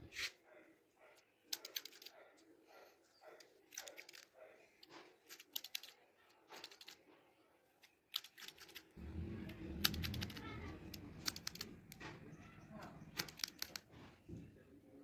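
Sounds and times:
low steady rumble: 9.0 - 12.0
scissors snipping hair: 13.2 - 13.8.

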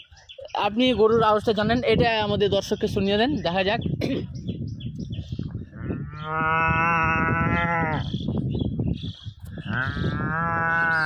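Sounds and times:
man imitating cow mooing: 5.8 - 8.1, 9.6 - 11.0.

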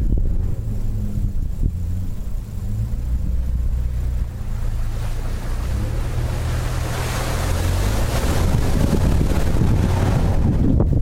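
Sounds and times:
car engine humming: 0.0 - 11.0
tyres splashing through puddles: 0.4 - 10.8.

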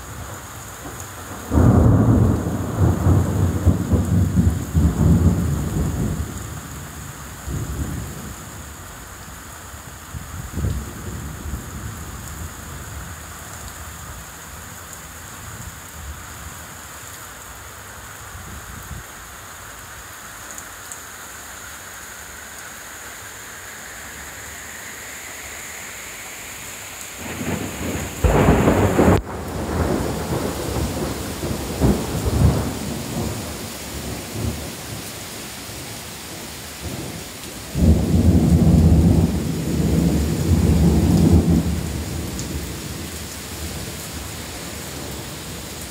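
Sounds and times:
heavy rain pouring: 0.0 - 45.9
thunder rumbling: 1.2 - 8.4, 27.2 - 35.0, 36.8 - 45.6.

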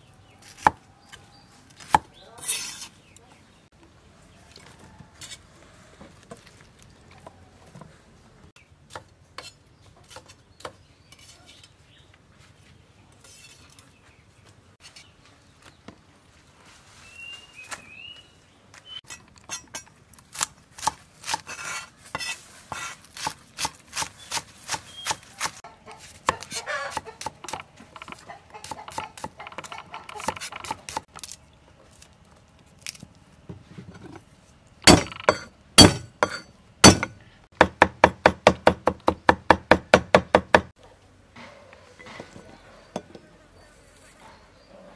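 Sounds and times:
cleaver chopping on wooden block: 34.9 - 40.7.

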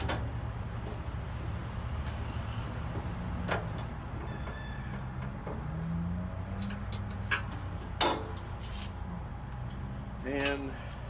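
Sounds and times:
low engine rumble: 0.0 - 11.0.

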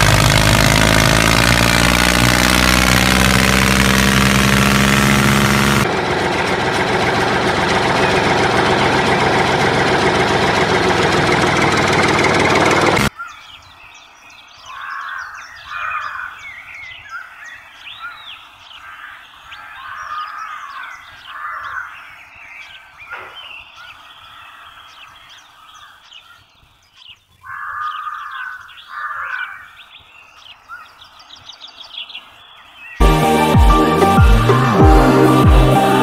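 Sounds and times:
birds chirping: 7.4 - 36.0
loud electronic music: 33.0 - 36.0.

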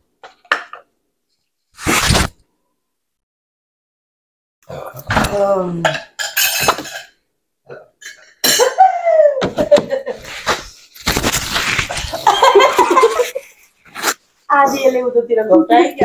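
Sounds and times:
women laughing: 8.6 - 10.4, 12.1 - 13.7.

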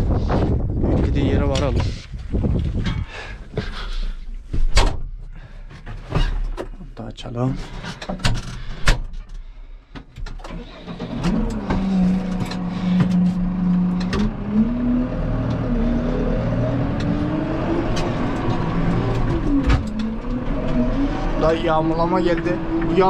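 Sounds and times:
vehicle engine running: 11.4 - 23.0.

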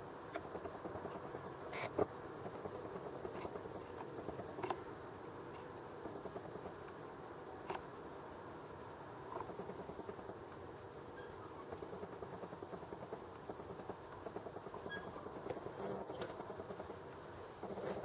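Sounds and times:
small clicks: 3.3 - 4.8, 7.6 - 7.9.

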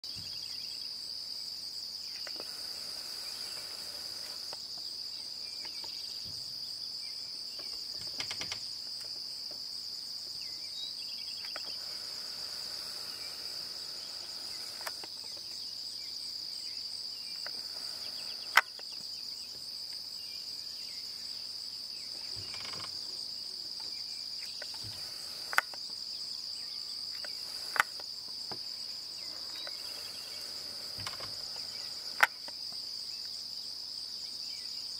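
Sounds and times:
crickets chirring: 0.0 - 34.9
sharp clicks: 11.4 - 12.0, 14.2 - 15.4, 18.4 - 19.0, 24.5 - 25.8, 27.2 - 28.1, 30.9 - 32.6.

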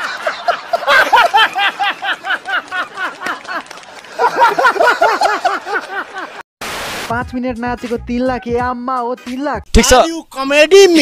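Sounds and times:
loud hearty laughter: 0.0 - 6.4.

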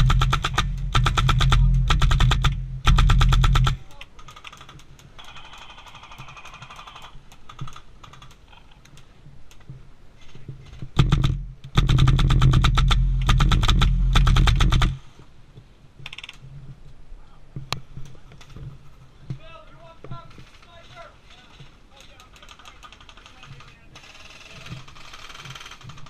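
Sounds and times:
airsoft rifle full-auto fire: 0.0 - 3.8, 11.0 - 15.1
distant scattered airsoft shots: 0.0 - 4.0, 11.0 - 15.1.

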